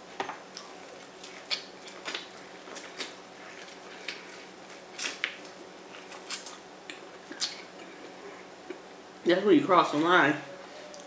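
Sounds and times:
faint hum: 0:00.0 - 0:11.0
chewing corn crunches: 0:00.5 - 0:08.8.

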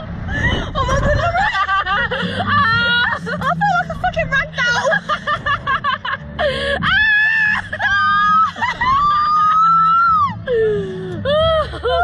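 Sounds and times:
women screaming: 0:06.8 - 0:10.6.

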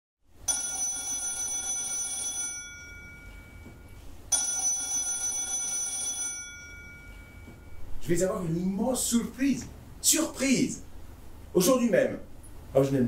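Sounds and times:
telephone bell ringing: 0:00.4 - 0:07.8.

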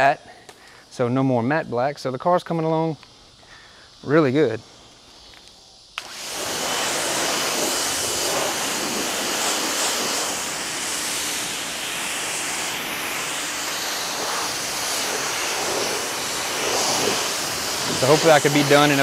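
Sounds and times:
pressure washer spraying water: 0:06.0 - 0:19.0.

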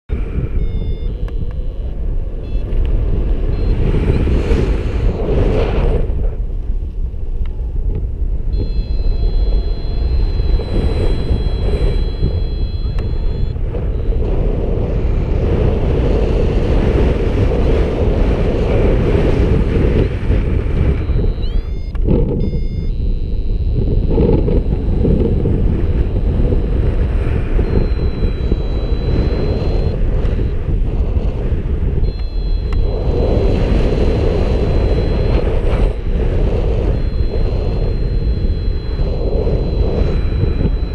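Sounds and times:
wind buffeting microphone: 0:00.1 - 0:40.9
high electronic tone: 0:00.3 - 0:05.2, 0:08.5 - 0:14.2, 0:20.6 - 0:30.1, 0:32.0 - 0:40.9
short rising chirps: 0:00.5 - 0:02.6, 0:08.6 - 0:13.6, 0:21.0 - 0:24.2, 0:27.6 - 0:30.0, 0:32.0 - 0:33.4, 0:34.4 - 0:36.0, 0:36.8 - 0:40.9.

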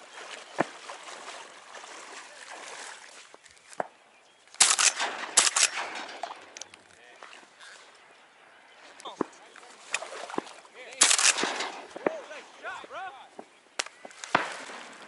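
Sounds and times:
loud shotgun shots: 0:04.6 - 0:06.6, 0:11.0 - 0:12.2, 0:14.3 - 0:15.0.

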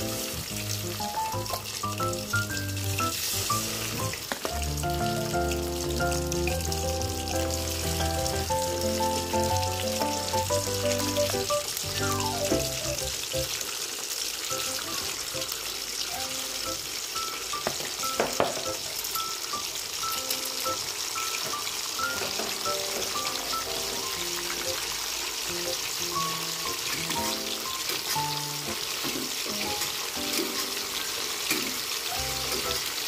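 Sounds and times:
background music: 0:00.0 - 0:13.6, 0:22.0 - 0:24.8
fish deep-frying sizzle: 0:00.0 - 0:33.0.

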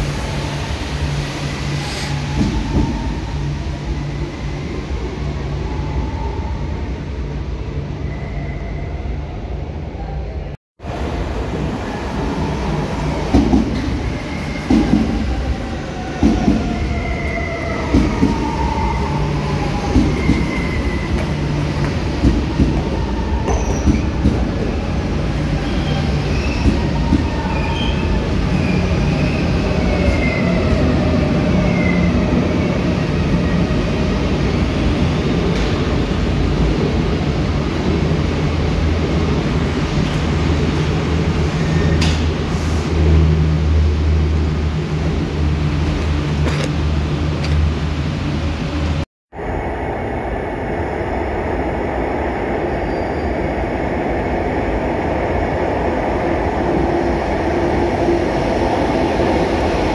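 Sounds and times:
train rumble: 0:10.8 - 0:59.9.

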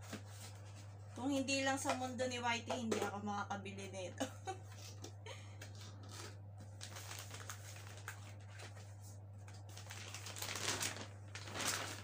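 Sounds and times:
steady low hum: 0:00.0 - 0:11.6
paper and cardboard crinkling: 0:05.7 - 0:12.0.

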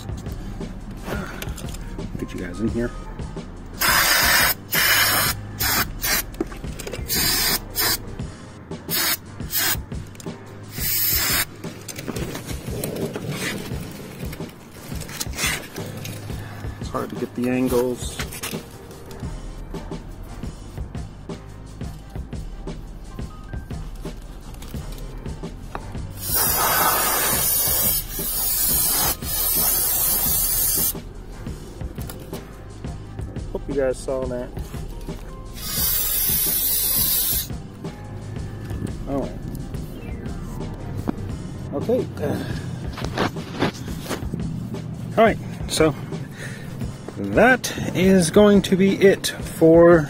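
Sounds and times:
aerosol spray hissing: 0:03.8 - 0:06.3, 0:07.1 - 0:08.0, 0:08.9 - 0:09.8, 0:10.7 - 0:11.5, 0:26.2 - 0:31.0, 0:35.6 - 0:37.5.

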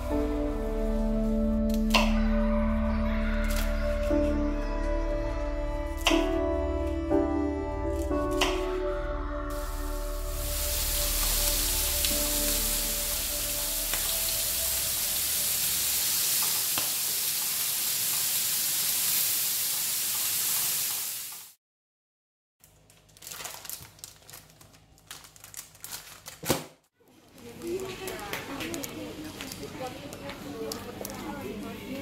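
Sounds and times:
music: 0:00.0 - 0:15.9
pork sizzling in a grill pan: 0:09.6 - 0:21.5
plastic bag crinkling: 0:22.6 - 0:26.5.

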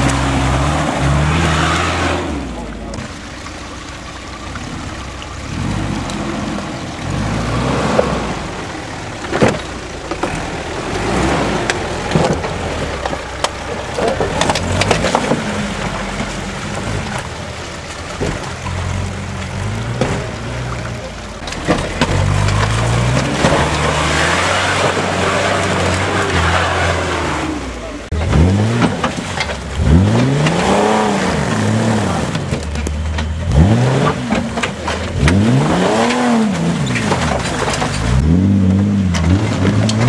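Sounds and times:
suv engine revving: 0:00.0 - 0:40.0
vehicle knocking over stones: 0:07.8 - 0:27.0, 0:28.1 - 0:40.0.

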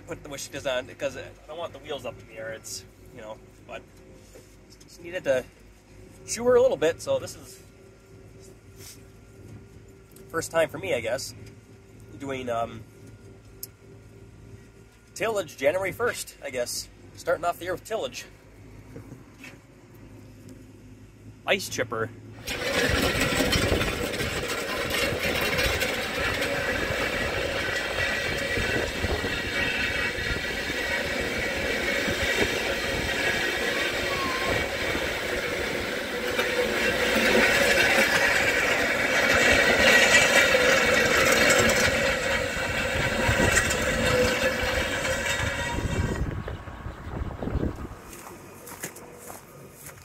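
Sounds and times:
tractor engine running: 0:00.0 - 0:50.0
disc blades scraping ice: 0:22.4 - 0:46.3.

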